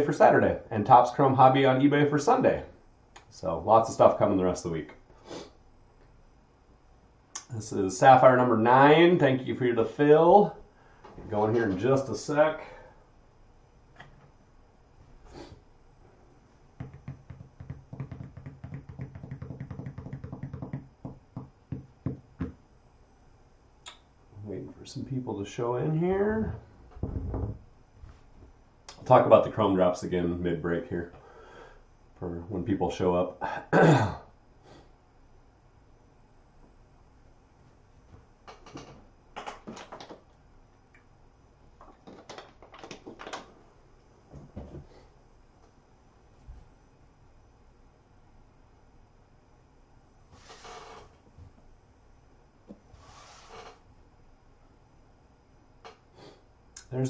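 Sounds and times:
fingers drumming on a tabletop: 0:16.8 - 0:22.6.

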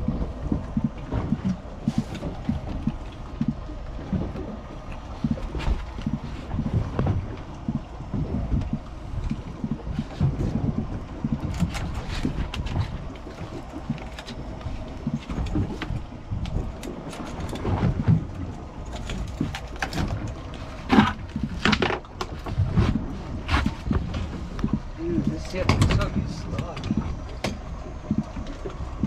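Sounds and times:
wind buffeting microphone: 0:00.0 - 0:29.0
scattered knocks and clicks: 0:05.2 - 0:28.8.

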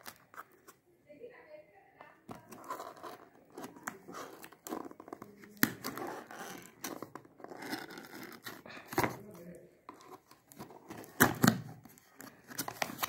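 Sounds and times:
cardboard crackling and clicks: 0:02.2 - 0:13.0
pen scraping tape on cardboard: 0:02.3 - 0:08.6.

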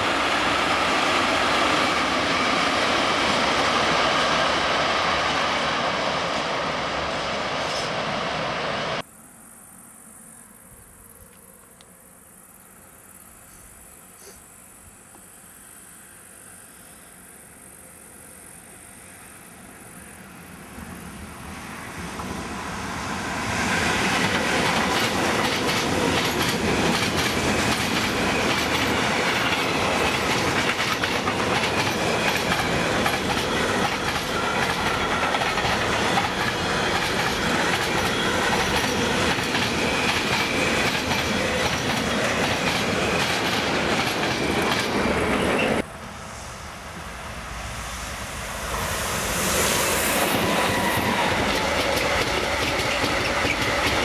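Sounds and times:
freight train passing: 0:00.0 - 0:09.1, 0:15.1 - 0:54.0
distant train approaching: 0:00.0 - 0:54.0
wheels clicking over rail joints: 0:24.2 - 0:45.8, 0:50.5 - 0:54.0.

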